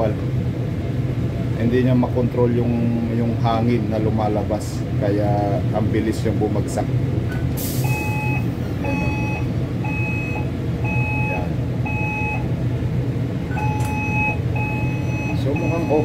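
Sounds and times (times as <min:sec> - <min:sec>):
low machine hum: 0:00.0 - 0:16.0
short hiss of air: 0:07.6 - 0:08.1
electronic beeper beeping: 0:07.8 - 0:12.5, 0:13.5 - 0:16.0.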